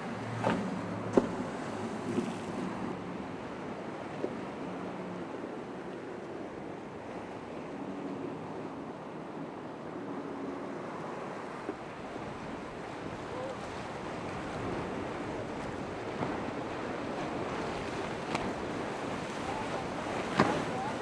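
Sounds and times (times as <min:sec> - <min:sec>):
waves breaking: 0:00.0 - 0:21.0.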